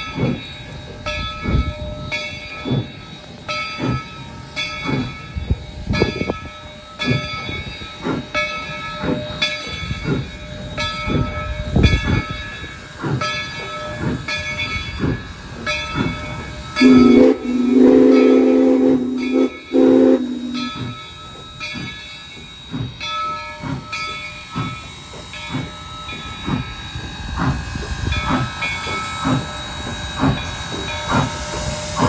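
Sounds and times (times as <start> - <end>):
steam hissing: 0.0 - 32.0
steam locomotive bell ringing: 0.0 - 32.0
steam whistle blowing: 16.7 - 20.9.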